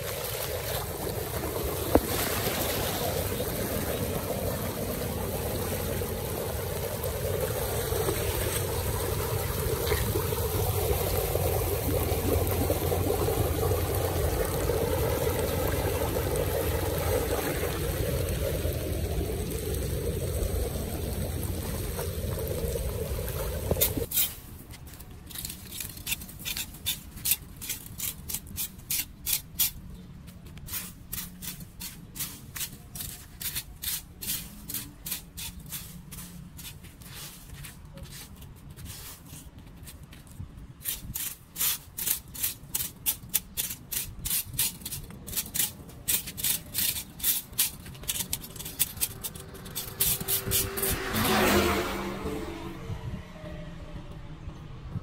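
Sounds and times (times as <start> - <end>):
floodwater rushing: 0.0 - 24.1, 48.4 - 52.8
rake scraping leaves on grate: 23.8 - 29.8, 30.6 - 51.8.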